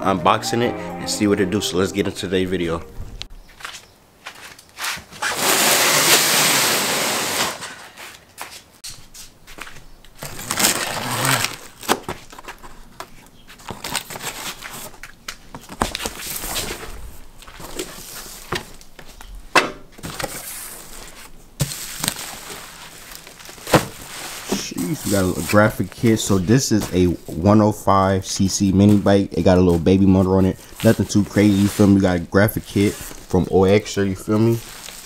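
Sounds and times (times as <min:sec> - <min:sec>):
cardboard and bubble wrap rustling: 0:03.6 - 0:19.3, 0:19.9 - 0:27.4, 0:28.7 - 0:35.0
cardboard box being cut: 0:05.2 - 0:07.7.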